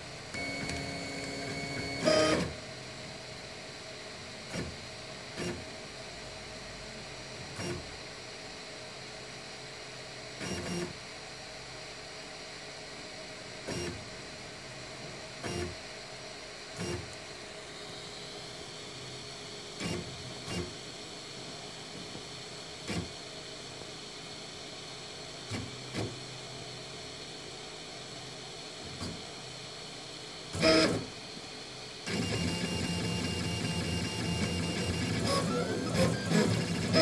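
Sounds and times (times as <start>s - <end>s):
printer fans humming: 0.2s - 5.7s, 30.5s - 37.0s.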